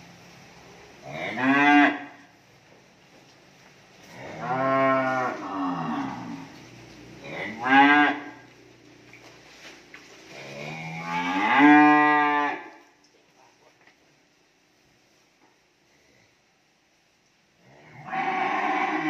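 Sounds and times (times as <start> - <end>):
cattle mooing: 4.1 - 6.6, 7.2 - 8.4, 10.4 - 12.7, 18.0 - 19.0.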